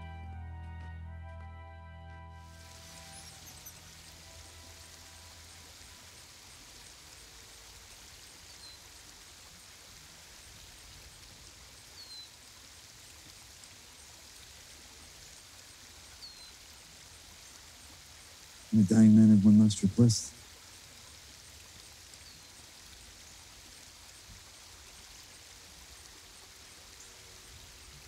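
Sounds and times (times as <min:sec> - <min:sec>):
soft music: 0:00.0 - 0:06.7
short high chirps: 0:02.4 - 0:04.1
outdoor ambience hiss: 0:02.4 - 0:28.0.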